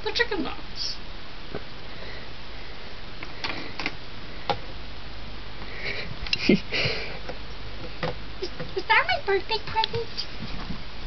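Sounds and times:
breathy rustles: 0:05.6 - 0:07.3.

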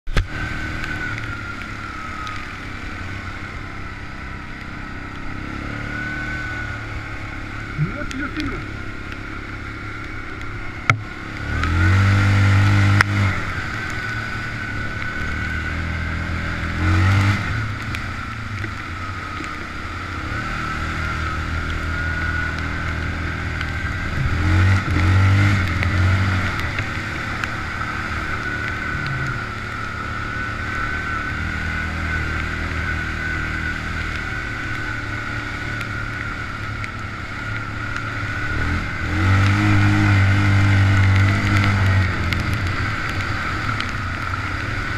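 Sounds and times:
steady high whine: 0:00.1 - 0:39.2
quad engine revving: 0:10.8 - 0:17.6, 0:20.2 - 0:36.6, 0:37.7 - 0:44.9.

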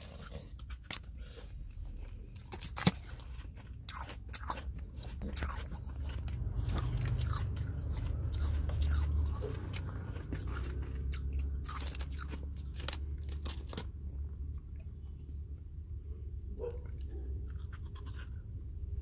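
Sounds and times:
ice crunching in mouth: 0:00.0 - 0:13.9
steady low hum: 0:00.0 - 0:19.0.

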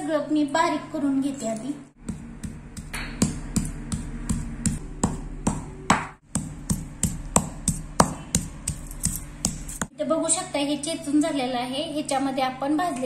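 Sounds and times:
stone pestle pounding in mortar: 0:02.0 - 0:09.9.

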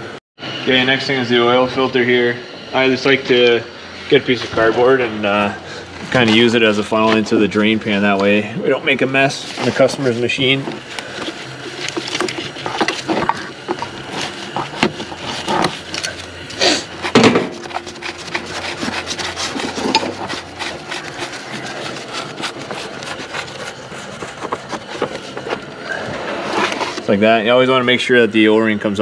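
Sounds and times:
wrench scraping on oil filter: 0:06.0 - 0:27.2.

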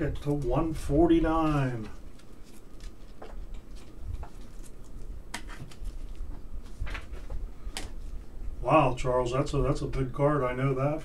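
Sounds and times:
trading cards being handled: 0:01.2 - 0:08.2.

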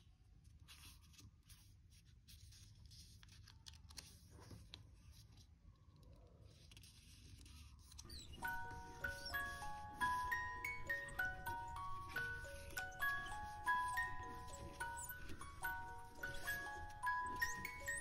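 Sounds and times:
paper rustling and crinkling: 0:00.3 - 0:18.0
bell-like music notes: 0:08.1 - 0:18.0.

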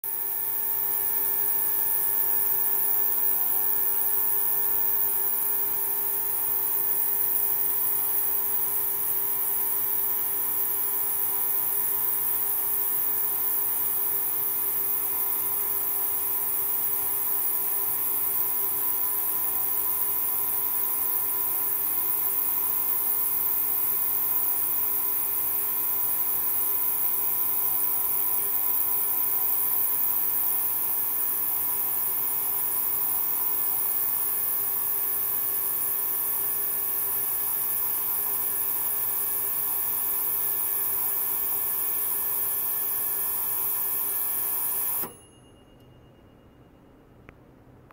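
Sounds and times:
ultrasonic cleaner humming: 0:00.0 - 0:12.7.

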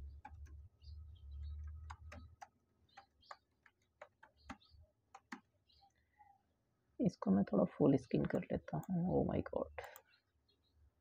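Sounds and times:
keyboard typing: 0:00.0 - 0:00.6, 0:01.4 - 0:05.5.

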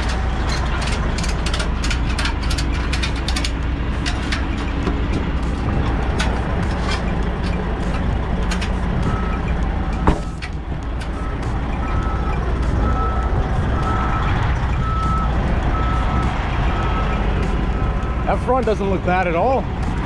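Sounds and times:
engine rumble: 0:00.0 - 0:20.0
reversing alarm beeps: 0:09.0 - 0:10.4, 0:11.1 - 0:18.5.

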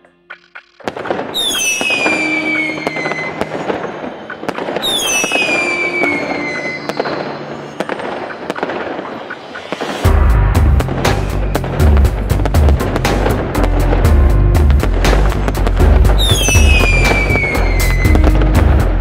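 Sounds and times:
fireworks crackling: 0:00.4 - 0:19.0
whistling rockets: 0:00.9 - 0:10.1, 0:16.2 - 0:18.5.

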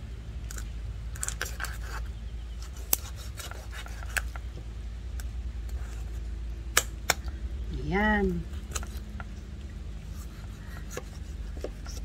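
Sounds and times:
knife cutting raw chicken: 0:02.6 - 0:04.4, 0:10.1 - 0:12.0.

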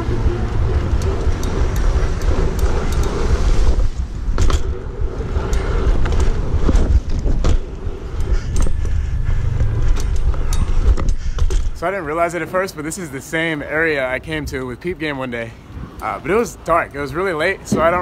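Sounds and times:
bike clicks and rattles: 0:00.0 - 0:12.3
wind rumble on microphone: 0:00.0 - 0:18.0.

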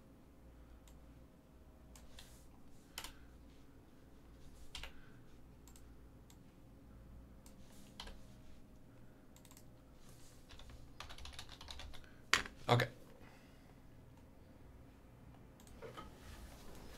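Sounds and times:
low steady hum: 0:00.0 - 0:16.9
computer keyboard keystrokes: 0:03.0 - 0:03.2, 0:04.7 - 0:05.0, 0:08.0 - 0:08.2, 0:09.4 - 0:09.7, 0:10.5 - 0:12.5.

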